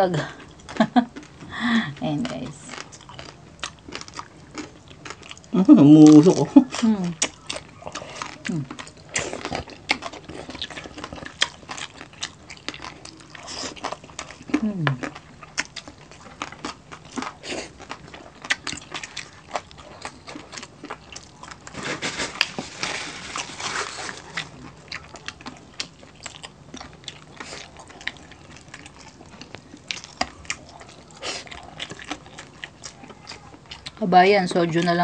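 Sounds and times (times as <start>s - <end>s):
crunching and chewing crispy pork: 0.0s - 35.0s.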